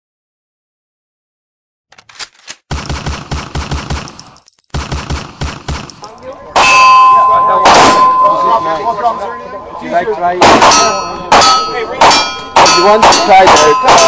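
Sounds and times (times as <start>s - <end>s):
automatic gunfire: 2.2s - 6.2s, 10.4s - 11.4s
metallic ringing: 5.9s - 8.6s, 10.7s - 14.0s
loud gunshot: 7.6s - 8.1s, 10.4s - 14.0s.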